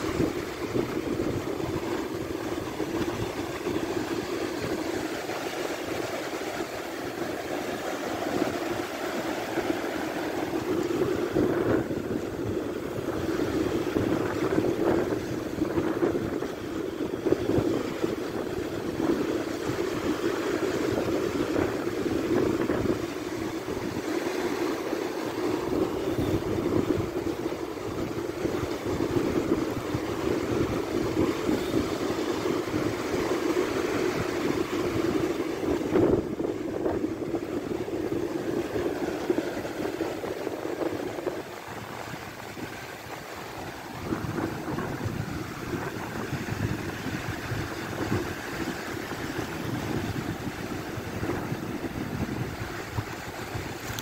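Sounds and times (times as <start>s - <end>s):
waves washing on beach: 0.0s - 54.0s.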